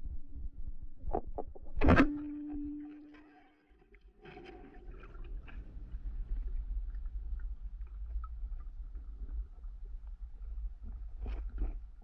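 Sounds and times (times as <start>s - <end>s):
muffled underwater rumble: 0.0s - 3.3s, 4.2s - 12.0s.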